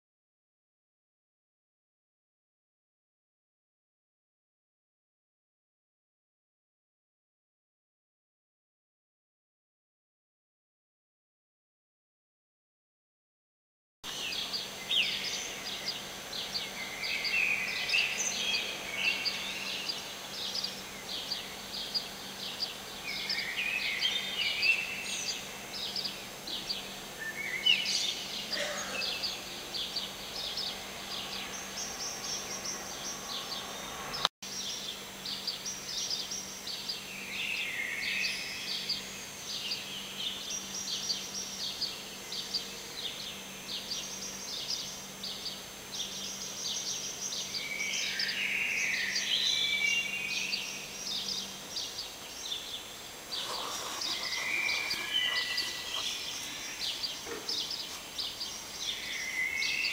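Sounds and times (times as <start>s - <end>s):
birds chirping: 14.1s - 59.9s.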